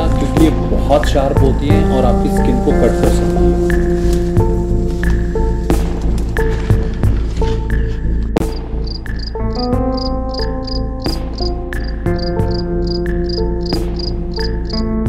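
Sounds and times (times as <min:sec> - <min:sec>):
high chirp: 0:08.5 - 0:15.0.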